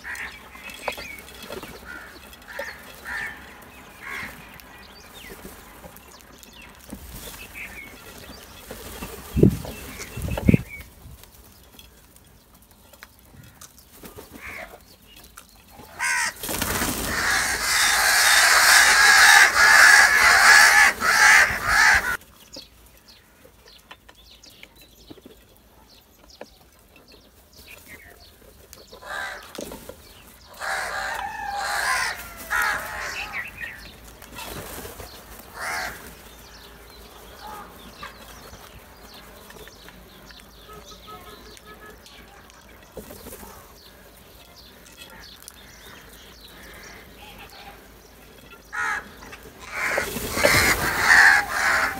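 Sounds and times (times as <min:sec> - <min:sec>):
crows calling: 0:00.0 - 0:05.5, 0:13.3 - 0:14.8, 0:15.8 - 0:22.2, 0:28.9 - 0:34.6, 0:35.4 - 0:38.4, 0:44.6 - 0:51.9.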